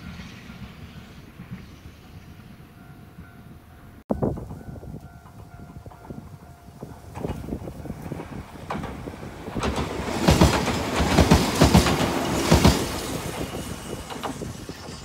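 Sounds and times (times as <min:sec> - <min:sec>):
train rumble: 0:00.0 - 0:15.0
train wheels clacking on rail joints: 0:04.2 - 0:15.0.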